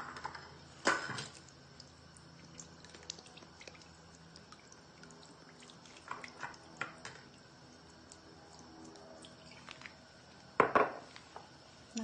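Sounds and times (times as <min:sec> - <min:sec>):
sauce trickling into bowl: 0:01.3 - 0:10.5.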